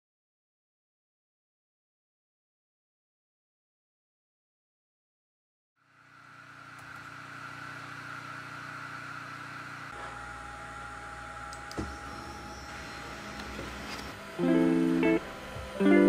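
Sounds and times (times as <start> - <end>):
laser engraver fan hum: 5.8 - 16.0
thin steady whine: 5.8 - 16.0.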